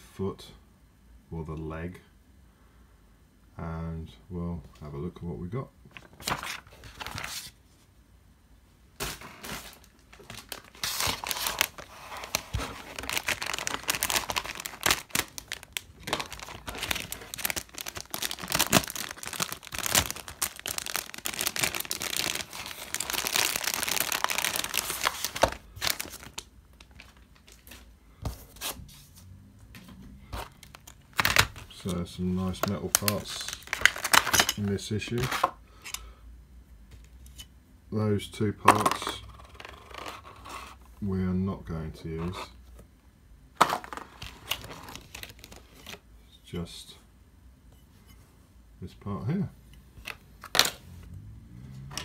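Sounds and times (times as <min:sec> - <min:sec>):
plastic packaging crinkling: 0:05.9 - 0:07.6, 0:09.0 - 0:27.9, 0:30.3 - 0:35.6, 0:43.6 - 0:46.0, 0:50.0 - 0:50.8.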